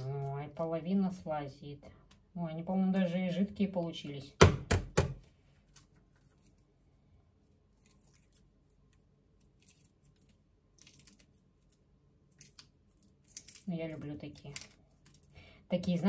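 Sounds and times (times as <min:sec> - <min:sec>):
eggshell crackling: 0:05.6 - 0:16.0.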